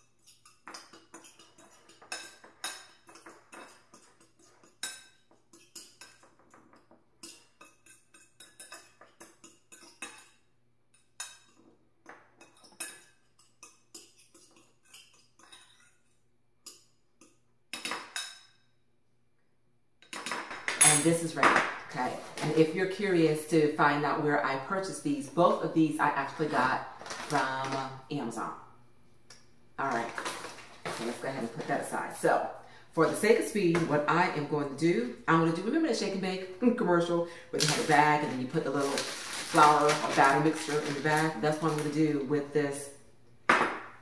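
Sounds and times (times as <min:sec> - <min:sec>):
fork clinking and scraping a plate: 0:00.0 - 0:18.7.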